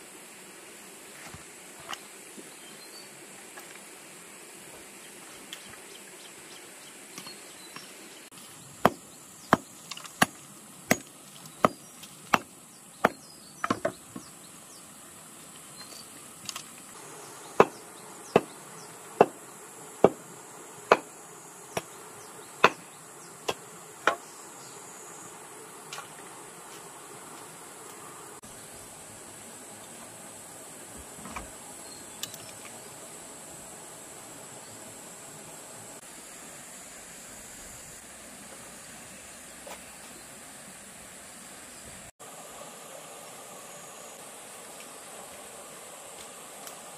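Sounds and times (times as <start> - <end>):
insects buzzing: 0.0 - 46.9
pounding on wooden post: 17.6 - 18.6, 20.0 - 20.2.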